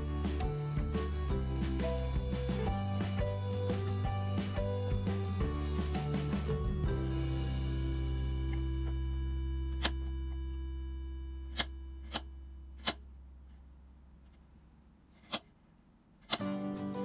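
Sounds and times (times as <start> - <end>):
guitar music: 0.0 - 10.4.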